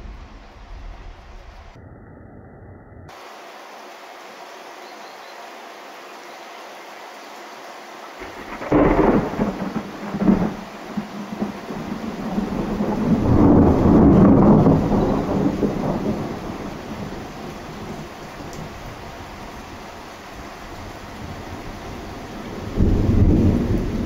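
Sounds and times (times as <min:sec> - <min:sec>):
steady rain: 0:00.0 - 0:01.8, 0:03.1 - 0:24.0
thunder rumbling: 0:00.0 - 0:03.1, 0:08.2 - 0:19.0, 0:21.2 - 0:24.0.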